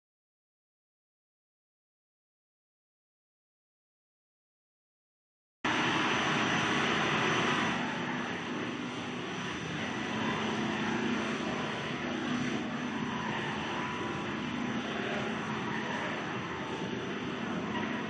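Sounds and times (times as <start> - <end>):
machine drone with high whine: 5.7 - 18.0.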